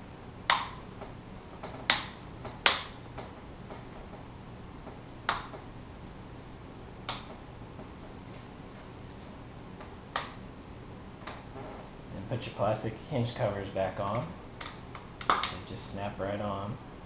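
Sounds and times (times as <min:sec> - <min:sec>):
sharp plastic snaps: 0:00.4 - 0:00.8, 0:01.6 - 0:03.3, 0:07.0 - 0:07.4, 0:10.1 - 0:10.4, 0:14.0 - 0:15.6.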